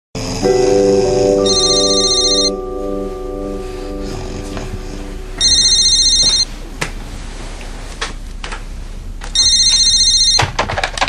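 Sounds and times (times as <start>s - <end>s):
telephone ringing trill: 1.4s - 2.6s, 5.4s - 6.5s, 9.4s - 10.5s.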